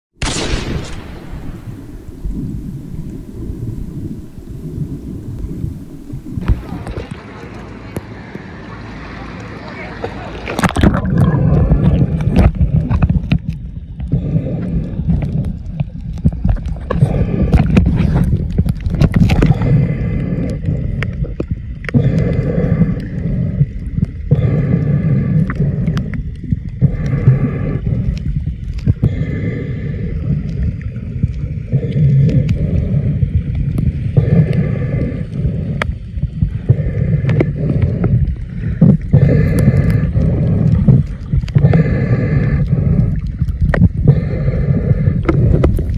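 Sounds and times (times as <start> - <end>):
underwater water sloshing: 0.2 - 45.9
breathing through snorkel: 14.0 - 15.5, 16.9 - 18.5, 19.2 - 45.9.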